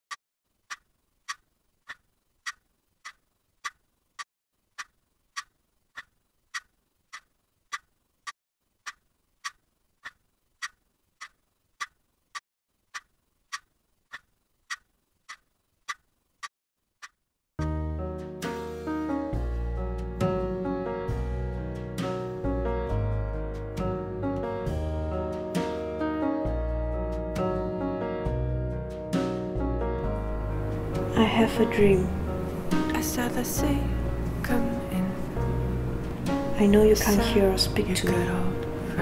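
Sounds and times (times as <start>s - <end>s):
clock ticking: 0.6s - 3.8s, 4.7s - 7.9s, 8.8s - 12.0s, 12.9s - 16.1s.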